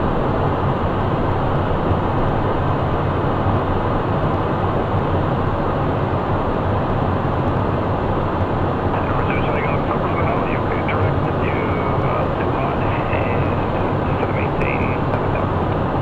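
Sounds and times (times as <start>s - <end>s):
jet cockpit airflow and engine noise: 0.0s - 16.0s
low hum: 0.0s - 16.0s.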